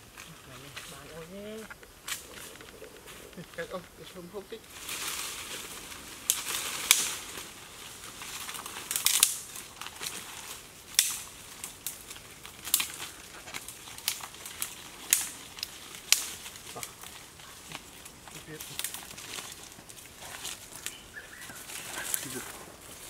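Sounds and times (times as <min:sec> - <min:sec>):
footsteps crunching dry leaves: 0:00.0 - 0:23.0
twigs snapping: 0:00.1 - 0:23.0.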